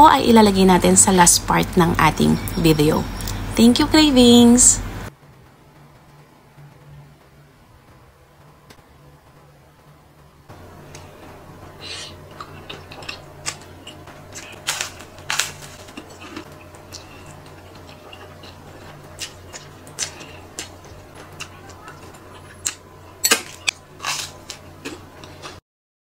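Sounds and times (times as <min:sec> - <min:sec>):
person chewing and slurping: 0:11.7 - 0:25.6.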